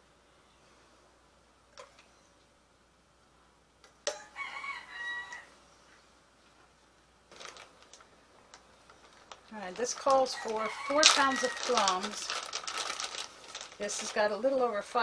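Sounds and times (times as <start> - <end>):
rooster crowing: 4.1 - 5.6, 10.3 - 11.9.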